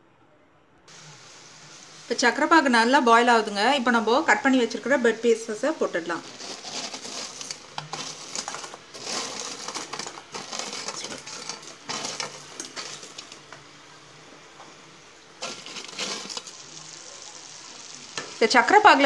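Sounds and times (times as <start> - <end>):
syrup boiling and bubbling: 0.9 - 19.0
crisp bread scraping on plate: 6.2 - 13.4, 15.4 - 16.6.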